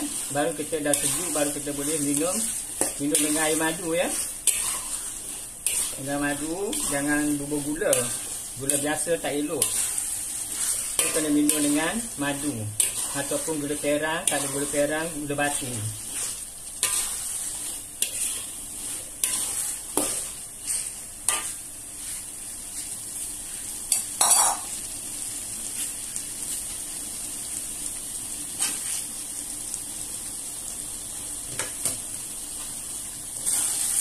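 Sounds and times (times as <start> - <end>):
spatula scraping a wok: 0.0 - 24.8, 28.5 - 29.1, 33.3 - 34.0
food sizzling: 0.0 - 34.0.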